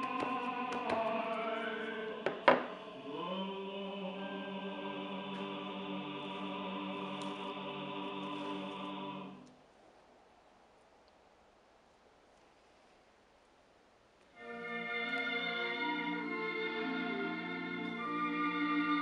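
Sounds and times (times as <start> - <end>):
choir singing a long chord: 0.0 - 9.5, 14.4 - 19.0.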